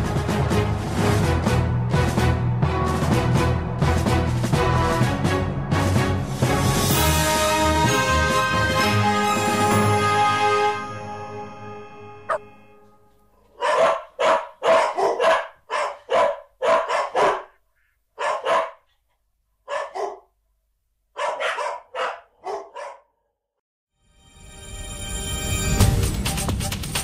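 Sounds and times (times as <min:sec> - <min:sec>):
dog barking: 0:13.4 - 0:20.4, 0:21.1 - 0:23.4.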